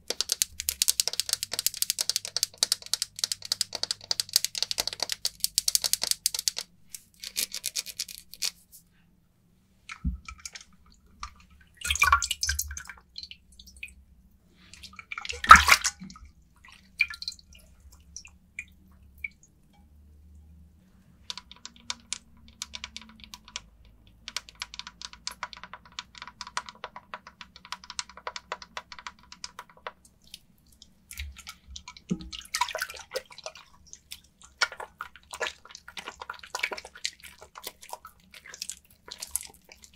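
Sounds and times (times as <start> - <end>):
crackly rubbing of soap: 0.0 - 8.8, 33.1 - 39.9.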